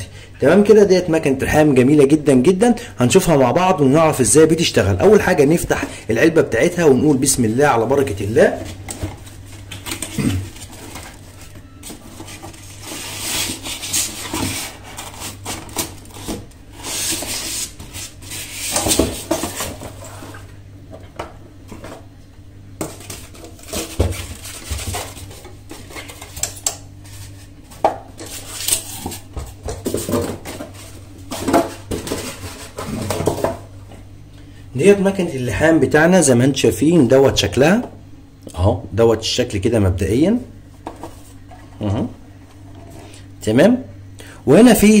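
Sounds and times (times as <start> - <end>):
cardboard and paper rustling: 8.5 - 20.5, 22.8 - 33.6
knocks and clatter of handling: 27.7 - 34.0.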